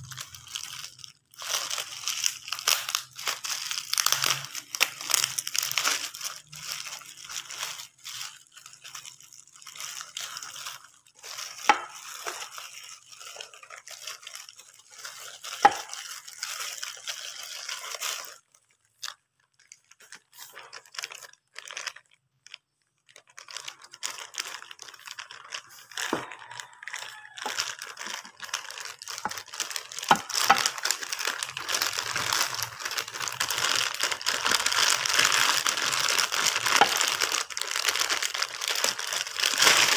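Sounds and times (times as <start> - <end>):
bubble wrap and plastic crinkling: 0.0 - 39.9.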